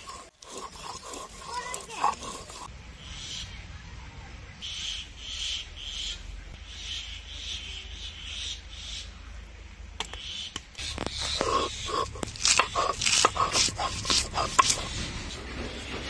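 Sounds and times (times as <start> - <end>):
fingers scraping paste on stone: 0.0 - 2.7, 10.8 - 15.3
stone roller crushing chillies: 0.0 - 2.7, 10.8 - 16.0.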